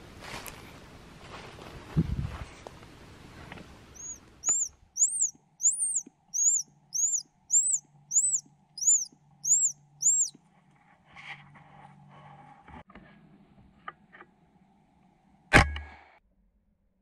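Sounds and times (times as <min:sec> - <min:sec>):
faint steady hum: 0:02.5 - 0:16.2
bird whistling short notes: 0:04.0 - 0:10.4.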